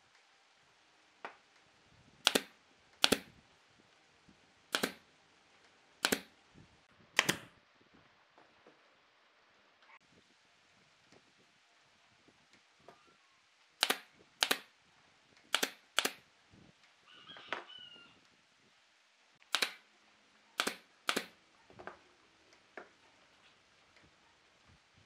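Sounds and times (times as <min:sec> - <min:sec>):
sharp clicks or knocks: 0:02.2 - 0:03.3, 0:04.7 - 0:05.0, 0:06.0 - 0:06.3, 0:07.2 - 0:07.5, 0:13.8 - 0:14.7, 0:15.5 - 0:16.2, 0:19.4 - 0:19.8, 0:20.6 - 0:21.9
short chirp-like squeak: 0:17.1 - 0:18.2.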